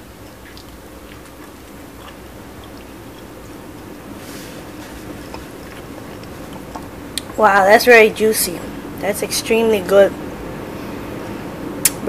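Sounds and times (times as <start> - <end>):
person chewing food: 0.0 - 7.4
low background hum: 0.0 - 12.0.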